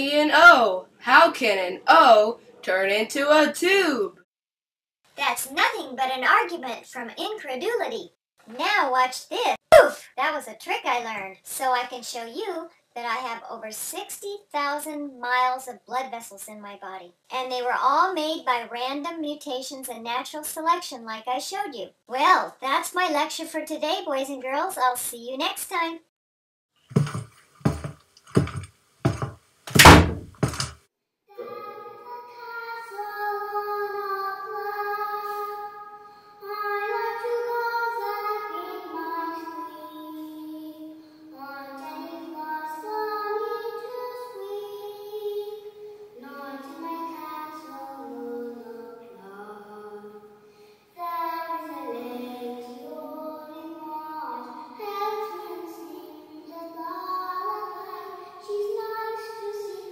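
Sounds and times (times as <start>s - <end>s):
hard thumps: 26.9s - 30.8s
song sung in a high voice: 31.3s - 50.4s.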